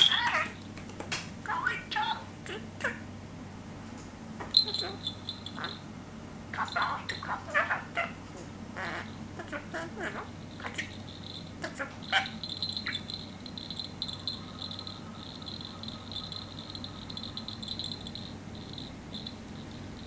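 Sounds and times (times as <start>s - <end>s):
toy jingling: 4.5s - 5.8s, 10.3s - 20.0s
budgerigar chirping: 4.6s - 5.8s, 6.6s - 8.2s, 8.8s - 19.3s.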